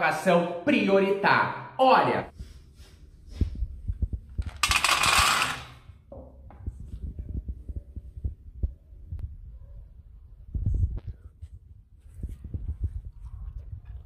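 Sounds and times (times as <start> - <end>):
kibble poured into metal bowl: 4.5 - 5.7.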